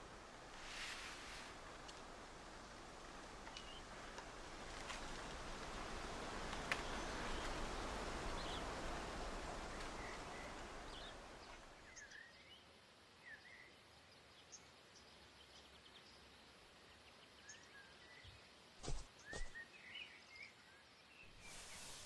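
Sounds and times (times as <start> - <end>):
wind through grass: 0.0 - 22.0
faint bird chirps: 9.7 - 22.0.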